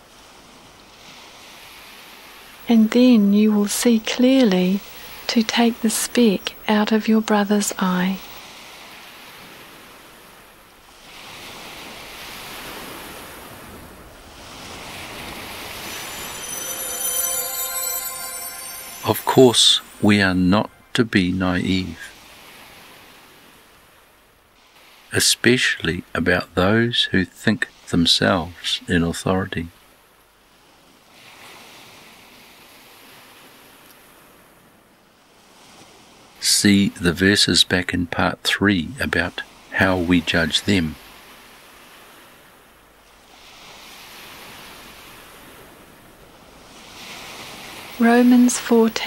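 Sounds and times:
ocean surf washing ashore: 0:00.0 - 0:25.3, 0:29.7 - 0:37.0, 0:39.0 - 0:49.0
faint rushing hiss: 0:01.0 - 0:22.7
music: 0:15.7 - 0:21.0.

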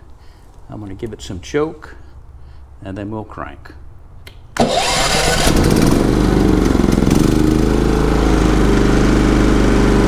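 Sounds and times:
generator engine running: 0:04.6 - 0:10.0.

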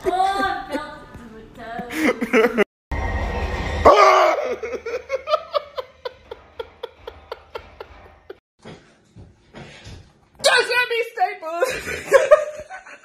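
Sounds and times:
laughter: 0:01.8 - 0:02.7, 0:04.4 - 0:08.4, 0:11.6 - 0:13.0
sudden loud burst of noise: 0:02.9 - 0:05.4.

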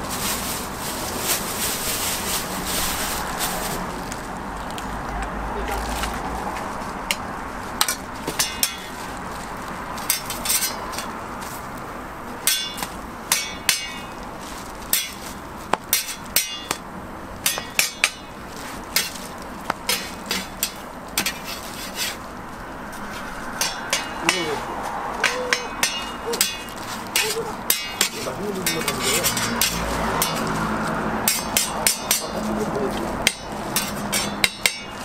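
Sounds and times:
metal spatula clanking on griddle: 0:07.8 - 0:08.9, 0:10.1 - 0:11.1, 0:12.4 - 0:14.2, 0:15.9 - 0:16.8, 0:17.4 - 0:18.4, 0:19.0 - 0:19.2, 0:19.8 - 0:22.2, 0:23.6 - 0:24.5, 0:25.2 - 0:30.5, 0:31.2 - 0:32.4, 0:33.2 - 0:35.0.

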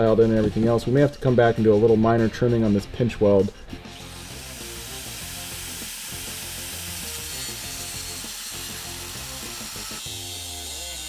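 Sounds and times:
angle grinder cutting steel: 0:03.8 - 0:11.0.

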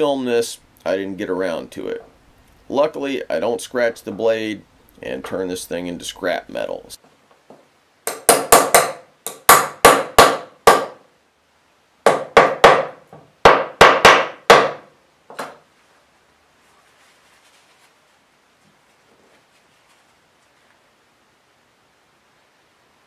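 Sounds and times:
small hammer tapping pins: 0:07.5 - 0:11.0.

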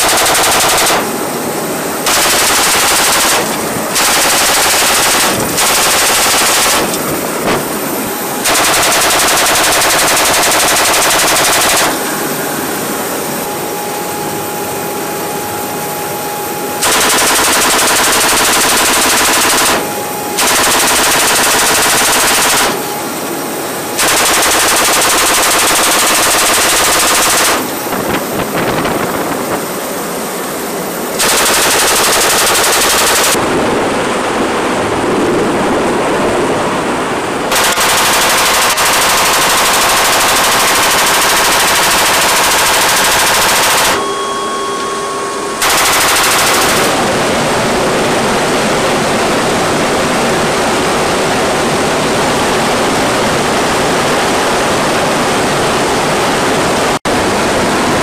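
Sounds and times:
machine gun firing bursts: 0:00.0 - 0:01.2, 0:02.0 - 0:07.8, 0:08.4 - 0:12.0, 0:16.8 - 0:23.0, 0:23.9 - 0:27.8, 0:31.2 - 0:33.4, 0:37.5 - 0:44.0, 0:45.6 - 0:47.0
aircraft drone: 0:00.0 - 0:58.0.

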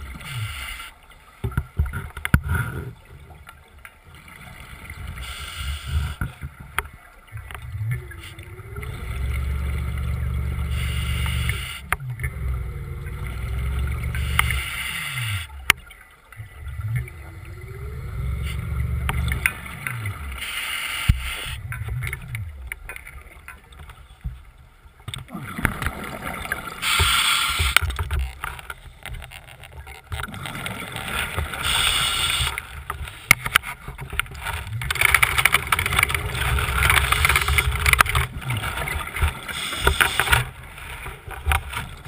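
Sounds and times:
regulator breathing hiss: 0:00.2 - 0:01.0, 0:05.2 - 0:06.2, 0:10.7 - 0:11.9, 0:14.2 - 0:15.6, 0:20.4 - 0:21.6, 0:26.8 - 0:27.8, 0:31.6 - 0:33.3, 0:39.5 - 0:40.4
exhaled air bubbling: 0:04.1 - 0:24.2, 0:25.0 - 0:42.0
underwater scooter motor whir: 0:06.2 - 0:20.5, 0:25.2 - 0:42.0.

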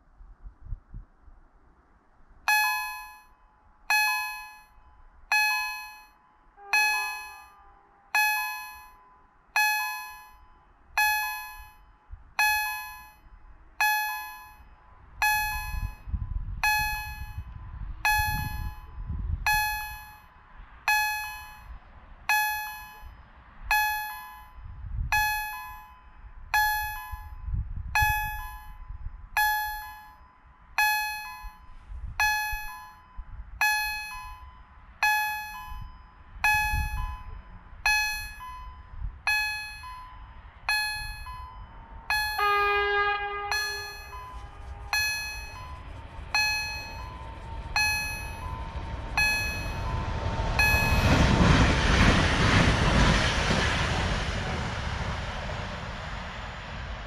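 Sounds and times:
level crossing bell ringing: 0:02.5 - 0:10.4, 0:11.0 - 0:11.8, 0:12.4 - 0:13.2, 0:15.2 - 0:16.0, 0:16.6 - 0:17.5, 0:18.1 - 0:18.9, 0:19.5 - 0:20.2, 0:20.9 - 0:21.7, 0:23.7 - 0:24.5, 0:25.2 - 0:26.0, 0:26.6 - 0:27.3, 0:28.0 - 0:28.8, 0:29.4 - 0:30.2, 0:30.8 - 0:51.4
low rumble: 0:40.4 - 0:57.0.

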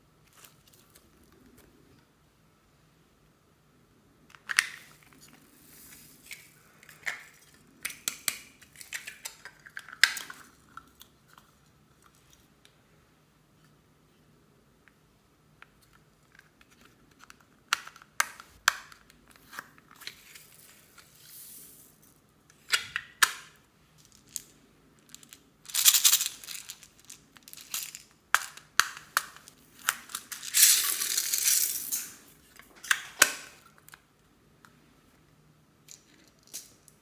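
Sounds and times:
foam beads rattling: 0:25.1 - 0:28.6, 0:29.8 - 0:32.2.

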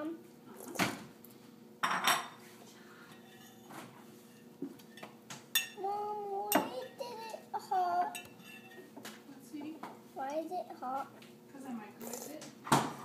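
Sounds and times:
spoon clinking on ceramic bowl: 0:04.9 - 0:05.8, 0:08.1 - 0:08.9
child vocal sound: 0:05.8 - 0:08.2.

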